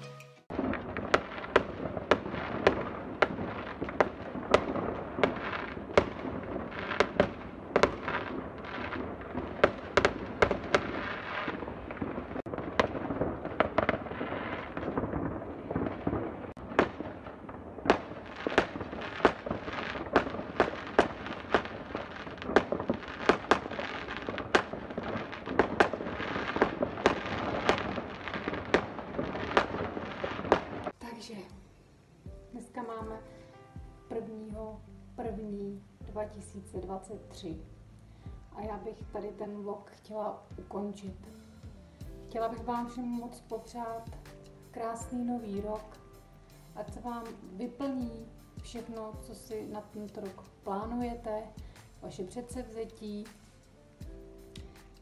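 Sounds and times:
fireworks bangs and cracks: 0:00.4 - 0:31.0
fireworks crackle: 0:00.4 - 0:31.4, 0:40.6 - 0:55.0.

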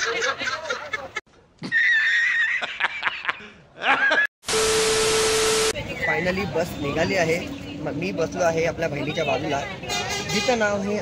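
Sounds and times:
people chattering and laughing: 0:00.0 - 0:01.2
steady beep: 0:04.5 - 0:05.8
tv static hiss: 0:04.5 - 0:05.8.

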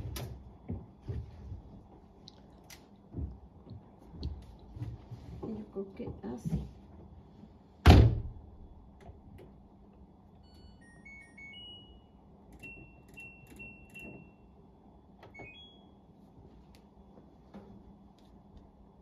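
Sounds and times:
washing machine panel beeping: 0:10.4 - 0:14.6, 0:15.2 - 0:16.1.

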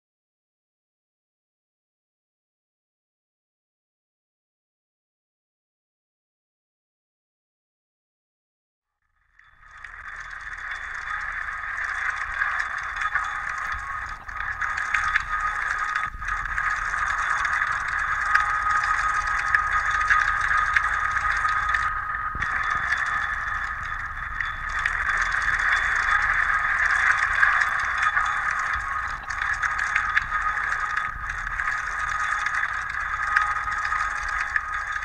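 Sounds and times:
crackling noise music hiss: 0:09.2 - 0:35.0
thin high tone: 0:10.1 - 0:35.0.

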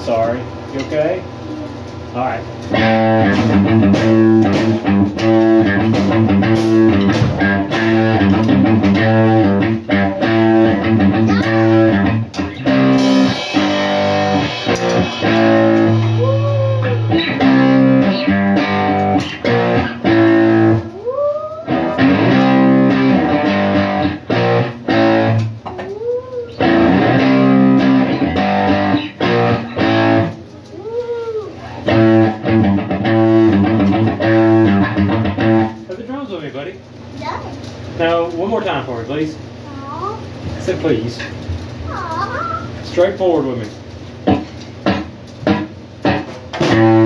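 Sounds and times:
electric guitar: 0:01.2 - 0:36.0, 0:43.6 - 0:47.0
bass guitar: 0:02.7 - 0:20.9, 0:21.7 - 0:25.6, 0:26.6 - 0:30.5, 0:31.8 - 0:35.9, 0:44.2 - 0:47.0
drum kit beating: 0:02.7 - 0:20.9, 0:21.7 - 0:25.7, 0:26.6 - 0:30.4, 0:31.8 - 0:35.9, 0:44.2 - 0:47.0.

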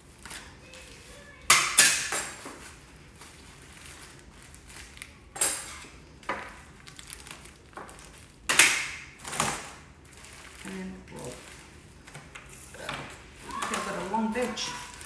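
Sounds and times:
cling wrap and paper crinkling: 0:02.4 - 0:08.5, 0:09.1 - 0:15.0.

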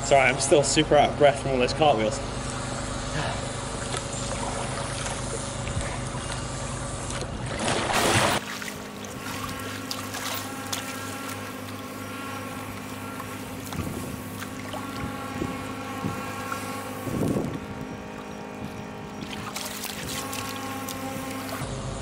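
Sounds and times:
steady low hum: 0:00.0 - 0:22.0
water sloshing and splashing: 0:03.7 - 0:21.6
rush of water: 0:07.6 - 0:11.9, 0:19.2 - 0:21.6.

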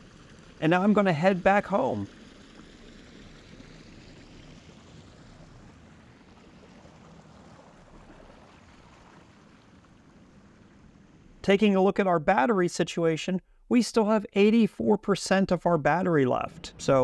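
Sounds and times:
water washing against hull: 0:00.0 - 0:11.5.

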